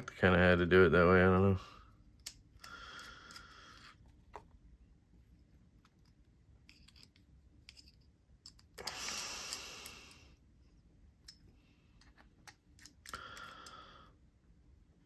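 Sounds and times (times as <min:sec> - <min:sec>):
screwdriver clicks and scrapes: 0:05.8 - 0:10.0, 0:12.0 - 0:13.2.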